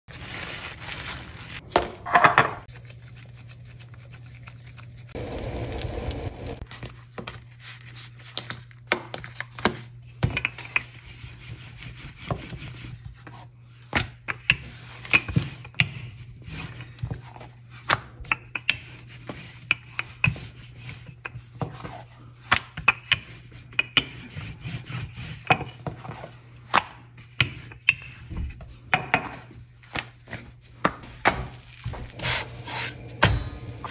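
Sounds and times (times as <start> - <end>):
dough rubbing: 23.1 - 26.4, 31.6 - 33.9.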